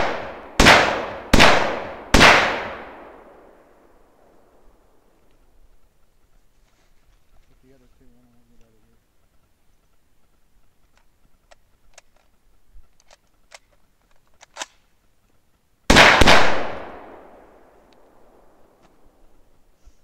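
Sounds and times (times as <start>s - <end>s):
rifle shot: 0.0s - 5.1s, 15.9s - 19.1s
rifle handling clicks: 10.8s - 14.9s.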